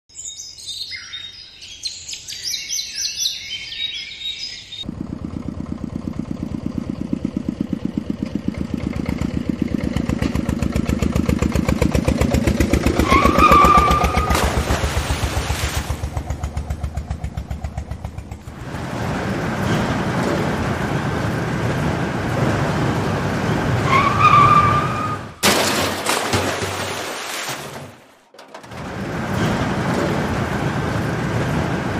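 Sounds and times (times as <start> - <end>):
high chirping: 0.1 - 4.8
engine chugging: 4.8 - 25.1.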